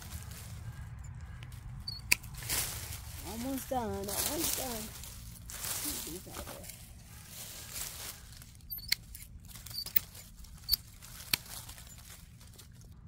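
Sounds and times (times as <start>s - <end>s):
dry leaves rustling: 0.0s - 13.0s
hand pruners snipping branches: 0.1s - 12.7s.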